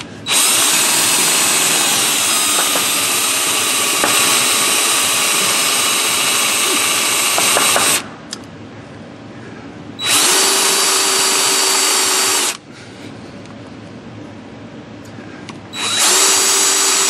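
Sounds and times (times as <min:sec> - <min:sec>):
power drill cutting metal: 0:00.0 - 0:08.0, 0:10.0 - 0:12.6, 0:15.8 - 0:17.0.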